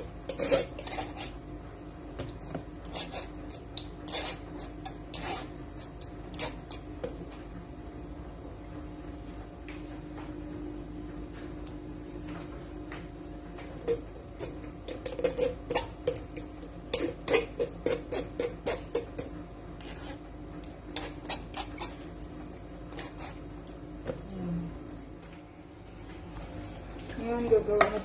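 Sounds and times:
utensils scraping metal mesh strainer: 0.3 - 1.4.

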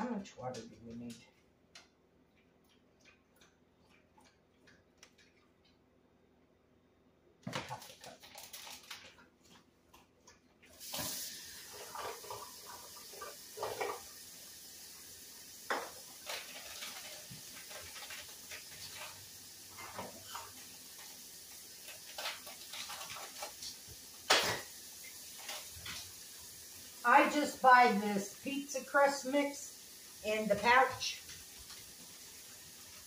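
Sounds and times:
tap water running into a cup: 10.8 - 33.0
kitchenware clinking: 21.7 - 26.1.

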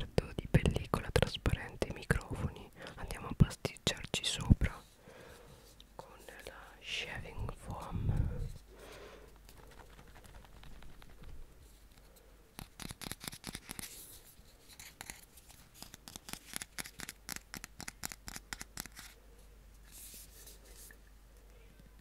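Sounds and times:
nails scratching ridged plastic: 9.3 - 12.0, 12.6 - 19.2.

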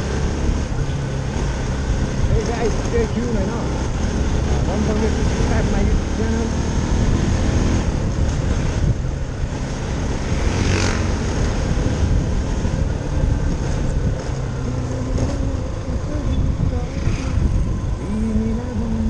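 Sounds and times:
motorcycle engine droning: 0.0 - 19.0
wind noise on microphone: 0.0 - 19.0.

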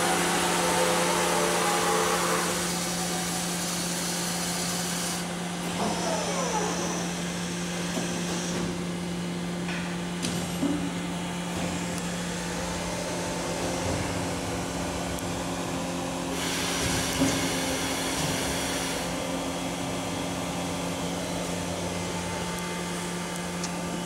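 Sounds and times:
boring mill humming: 0.0 - 24.0
machine hiss: 16.3 - 19.2.

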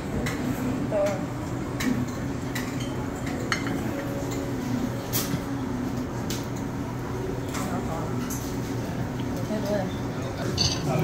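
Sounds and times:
low murmur of room noise: 0.0 - 11.0
cutlery clinking on ceramic: 10.4 - 11.0.

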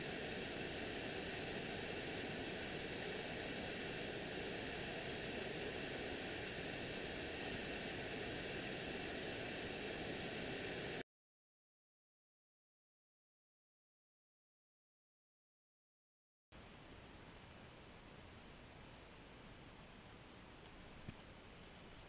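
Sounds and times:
creek rushing over rapids: 0.0 - 11.0.

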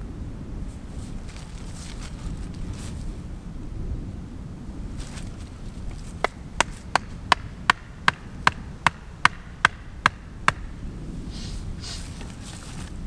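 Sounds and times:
low wind rumble: 0.0 - 13.0
axe knocking wooden stake: 6.2 - 10.7.

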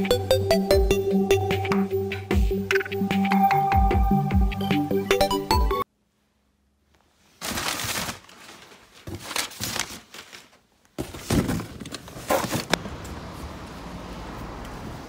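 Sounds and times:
paper packing rustling: 7.2 - 12.8.

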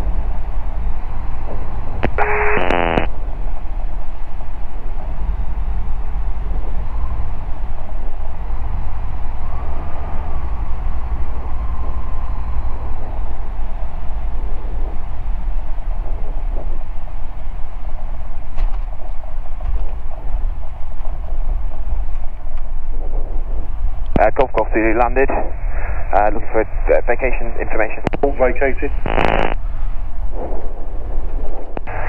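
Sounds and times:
light aircraft engine droning: 0.0 - 32.0
radio speech: 2.0 - 3.1, 24.2 - 29.6.

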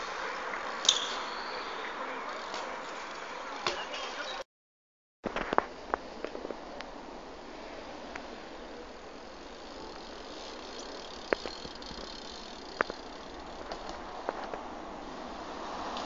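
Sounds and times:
outdoor background noise: 0.0 - 4.5, 5.2 - 16.0
bike hitting concrete ledge: 9.8 - 14.6.

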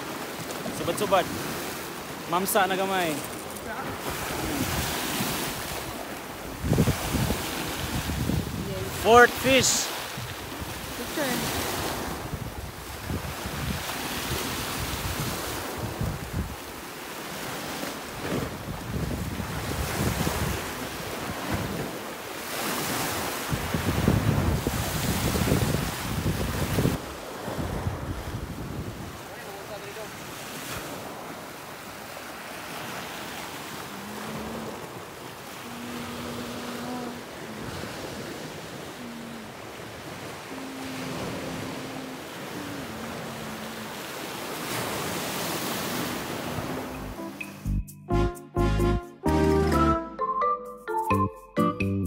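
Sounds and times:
sea waves washing onto shore: 0.0 - 47.4
wind: 0.0 - 52.0
wind buffeting microphone: 3.3 - 9.0, 10.0 - 16.8, 18.1 - 22.1, 22.8 - 29.4.

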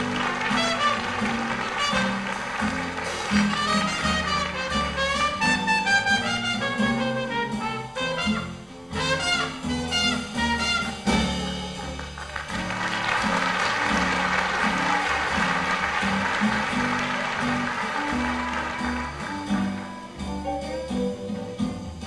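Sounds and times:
jazz rhythm section: 0.0 - 22.0
walking string bass: 0.0 - 22.0
muted trumpet: 0.2 - 11.9.

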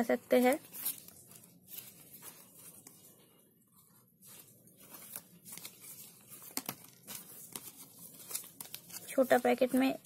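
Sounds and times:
wrappers crinkling and rustling: 0.0 - 10.0.

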